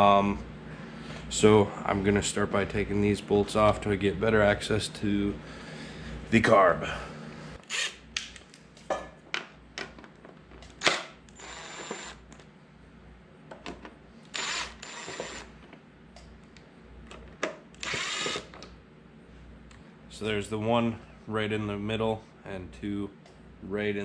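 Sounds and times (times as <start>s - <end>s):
cordless drill running: 7.6s - 8.0s, 10.8s - 12.2s, 14.3s - 15.5s, 17.7s - 18.6s.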